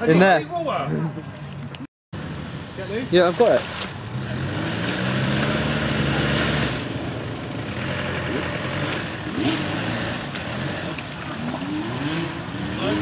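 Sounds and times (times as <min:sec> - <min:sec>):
vehicle engine revving hard: 0:04.0 - 0:13.0.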